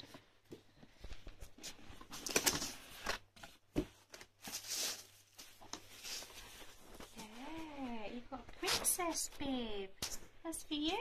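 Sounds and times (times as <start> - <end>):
paper and cardboard rustling: 0.0 - 8.0.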